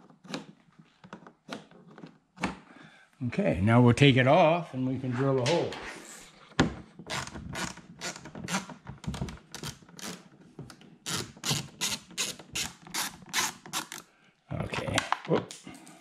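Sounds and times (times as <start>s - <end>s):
hand ratchet clicking: 11.1s - 14.0s.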